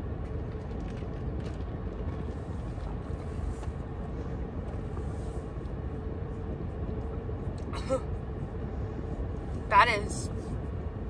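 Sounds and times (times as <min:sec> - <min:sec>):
car air conditioning blowing: 0:00.0 - 0:11.0.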